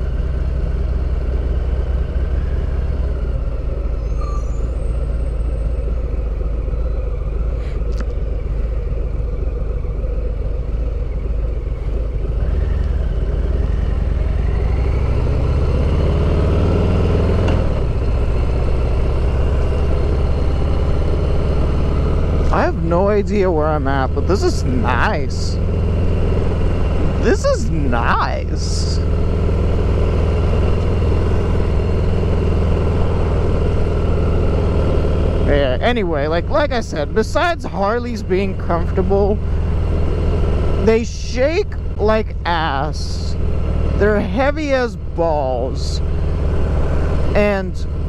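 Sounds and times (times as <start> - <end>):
motorcycle engine running: 0.0 - 48.0.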